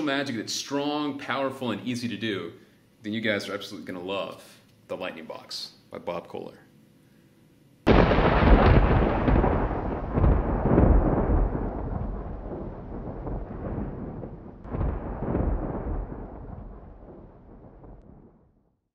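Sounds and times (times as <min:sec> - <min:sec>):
rolling thunder rumble: 0:07.9 - 0:18.6.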